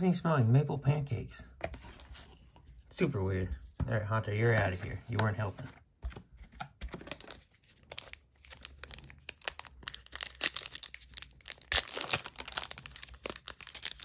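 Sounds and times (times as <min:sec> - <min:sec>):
foil wrapper crinkling: 0:06.9 - 0:14.0
foil wrapper tearing: 0:07.2 - 0:14.0.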